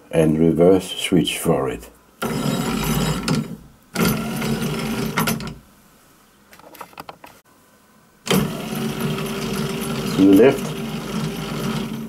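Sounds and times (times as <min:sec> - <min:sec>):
wiper motor turning gears: 0:02.2 - 0:05.6, 0:08.3 - 0:12.0.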